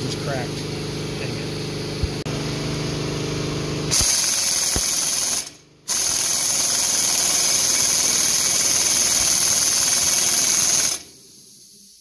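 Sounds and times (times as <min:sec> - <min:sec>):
pneumatic impact gun hammering: 0:03.9 - 0:11.3
faint hiss: 0:11.2 - 0:12.0.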